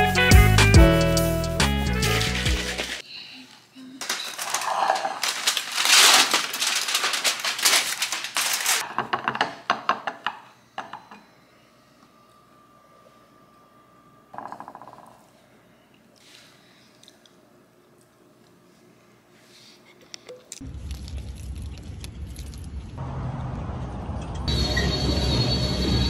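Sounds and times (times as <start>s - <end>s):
small hard objects clinking: 4.0s - 8.8s.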